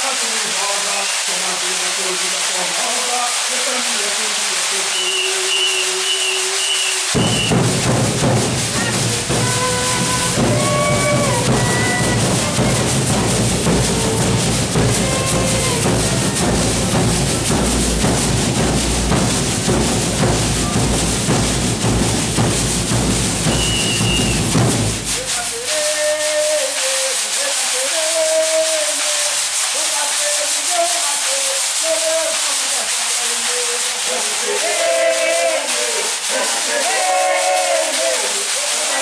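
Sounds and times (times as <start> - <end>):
drums: 0.0 - 39.0
person singing: 8.8 - 17.0, 25.2 - 32.4.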